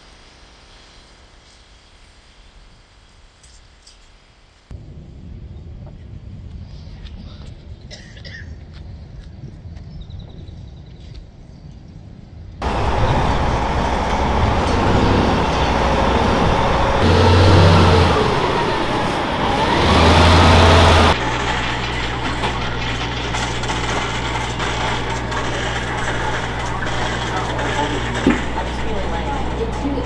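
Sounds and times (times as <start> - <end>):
diesel engines running: 12.6 - 30.0
fire trucks driving past: 12.6 - 30.0
whine rising and falling: 12.6 - 30.0.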